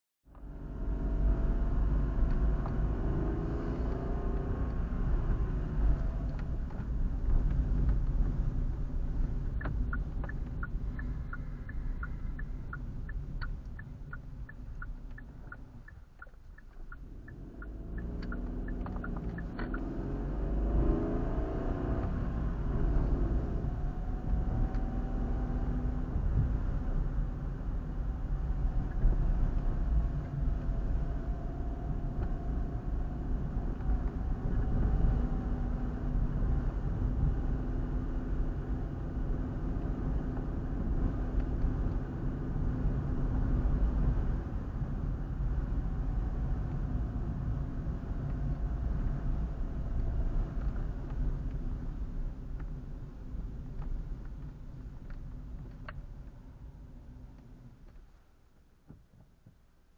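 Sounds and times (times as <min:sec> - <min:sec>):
car engine and road rumble: 0:00.2 - 0:59.9
turn indicator ticking: 0:01.6 - 0:27.3, 0:28.0 - 0:35.2, 0:39.2 - 0:52.8.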